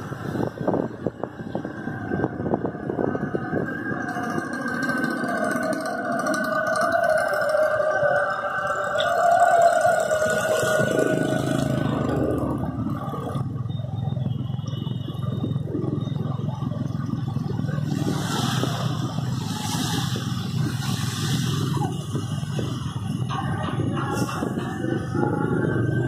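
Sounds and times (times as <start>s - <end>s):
passing traffic: 0.0s - 26.0s
water sprayed by tyres: 17.8s - 21.8s.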